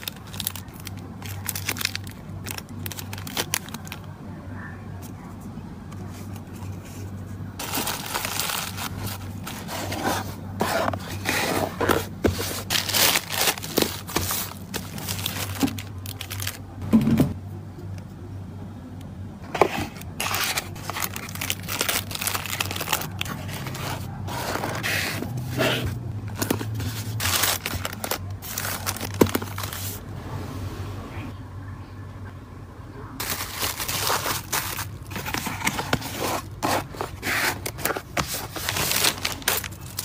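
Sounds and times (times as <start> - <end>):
plastic packaging rustling: 0.0 - 4.2, 6.1 - 16.8, 19.4 - 30.0, 33.2 - 40.0
cardboard scraping: 6.2 - 16.4, 19.4 - 30.0, 33.2 - 40.0.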